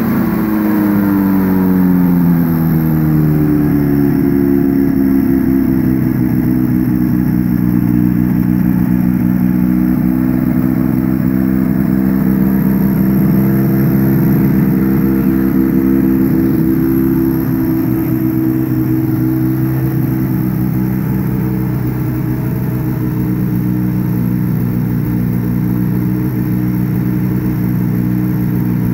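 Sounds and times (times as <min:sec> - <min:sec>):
ultralight aircraft engine running: 0:00.0 - 0:28.9.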